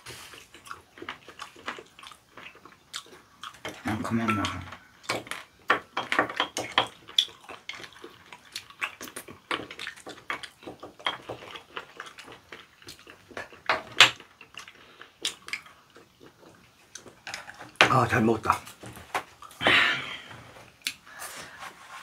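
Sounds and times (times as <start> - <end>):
chopsticks clinking on ceramic dishes: 4.1 - 4.8.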